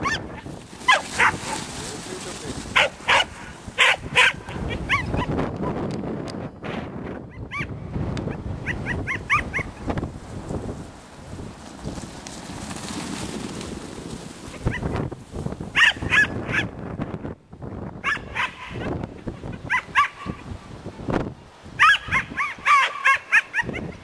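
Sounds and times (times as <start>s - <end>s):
dog barking in high yips: 0.0s - 1.6s, 2.8s - 5.3s, 7.3s - 7.7s, 8.6s - 9.8s, 15.8s - 16.7s, 18.0s - 18.9s, 19.7s - 20.4s, 21.8s - 24.0s.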